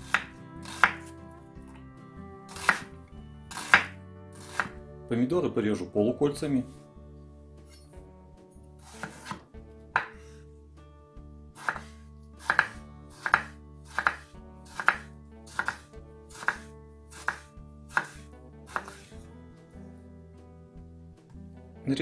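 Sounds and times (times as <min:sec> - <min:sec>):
knife slicing on cutting board: 0:00.0 - 0:01.1, 0:02.5 - 0:02.9, 0:03.5 - 0:04.8, 0:08.8 - 0:10.4, 0:11.6 - 0:19.2
quiet background music: 0:00.0 - 0:22.0.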